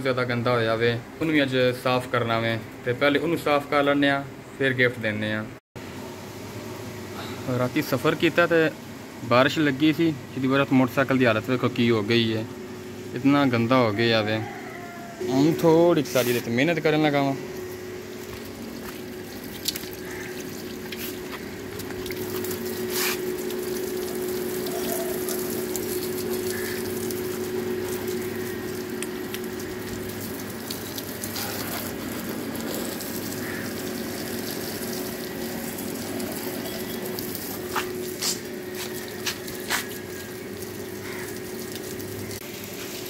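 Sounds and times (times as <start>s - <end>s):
steady low hum: 0.0s - 14.2s, 15.0s - 43.0s
hose water spraying and splashing: 15.3s - 43.0s.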